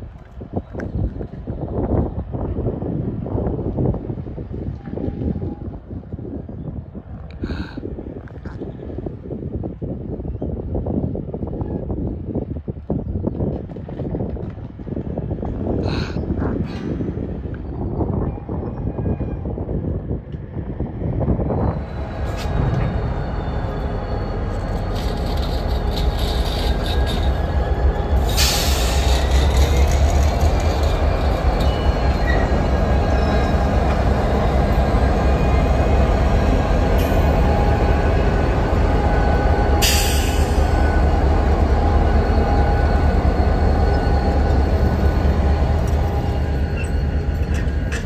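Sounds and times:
diesel locomotives rumbling: 0.0s - 48.0s
wheels squealing: 21.7s - 38.0s, 41.8s - 48.0s.

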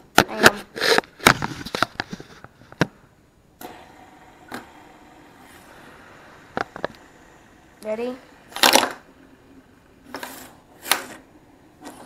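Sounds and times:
fidget spinner whirring: 3.6s - 12.0s.

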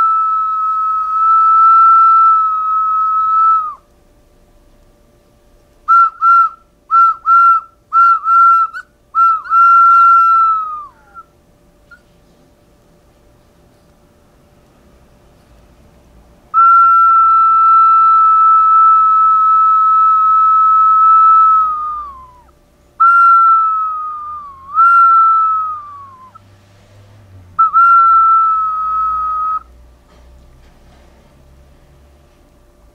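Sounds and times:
person whistling: 0.0s - 3.8s, 5.9s - 11.3s, 16.6s - 26.4s, 27.6s - 29.7s.

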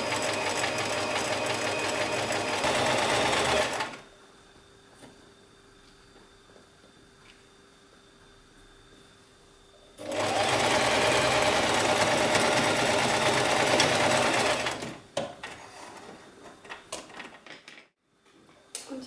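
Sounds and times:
sewing machine running: 0.0s - 4.0s, 10.0s - 15.0s.

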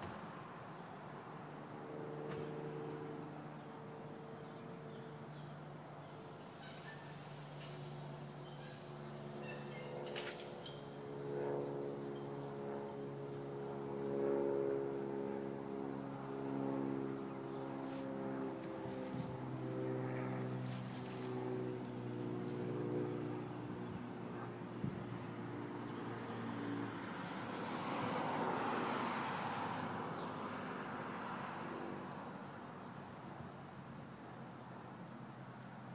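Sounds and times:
road vehicle passing by: 0.0s - 33.1s.

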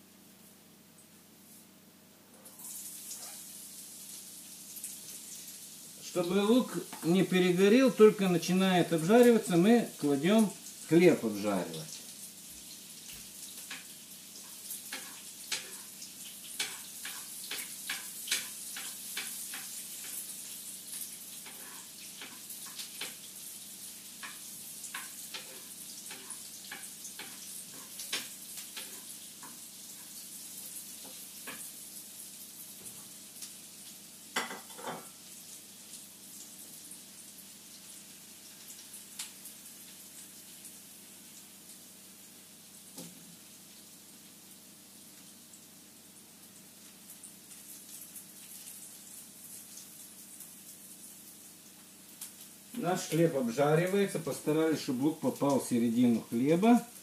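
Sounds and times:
bread sizzling in a pan: 2.4s - 57.0s
crackling pops of frying: 11.7s - 45.7s, 46.4s - 57.0s.

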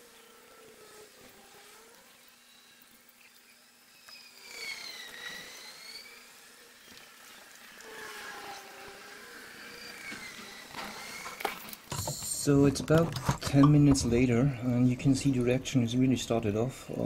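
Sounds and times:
flying insect buzzing: 0.0s - 11.9s.

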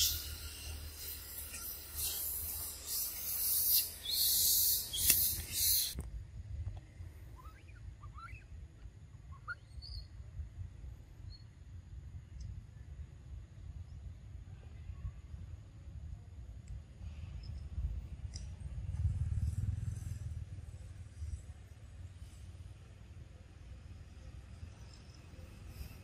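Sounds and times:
faint animal squeaks: 0.0s - 6.0s
loud high hiss: 0.0s - 6.0s.

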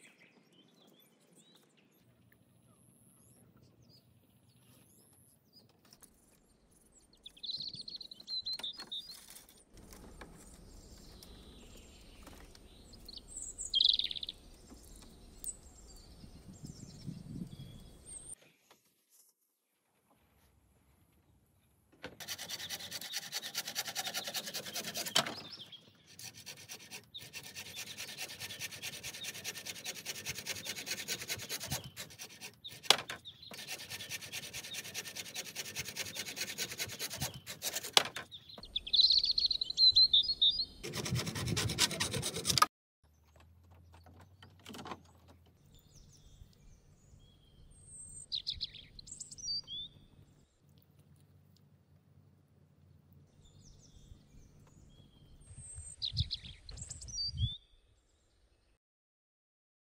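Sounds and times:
bamboo poles rubbing and scraping: 8.7s - 12.8s, 22.2s - 38.4s, 40.8s - 42.7s
birds chirping: 9.9s - 18.4s, 22.3s - 42.5s, 43.1s - 50.8s.

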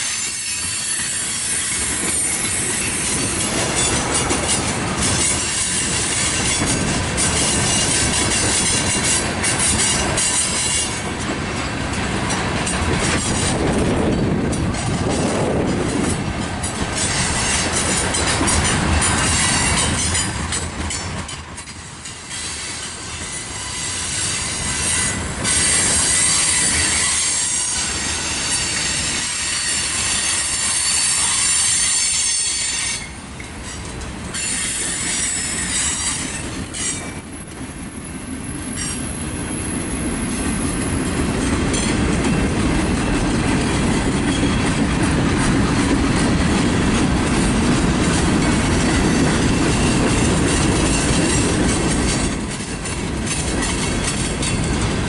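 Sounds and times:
freight cars rumbling on rails: 0.0s - 55.0s
wheels squealing on rails: 0.0s - 55.0s.

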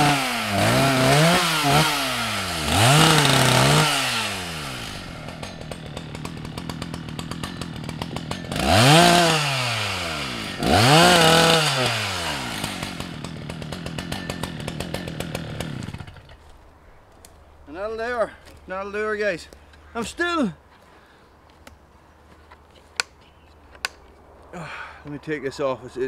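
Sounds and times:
chainsaw revving and idling: 0.0s - 16.6s.

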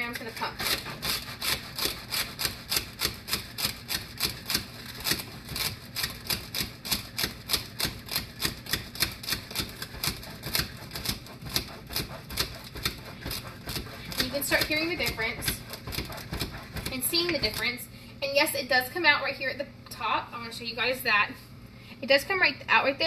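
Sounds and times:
hand pump plunger clatter: 0.0s - 17.6s.

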